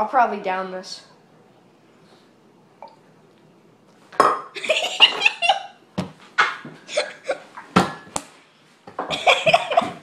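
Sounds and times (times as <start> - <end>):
boys laughing: 4.6 - 5.8, 6.4 - 7.5, 9.1 - 10.0.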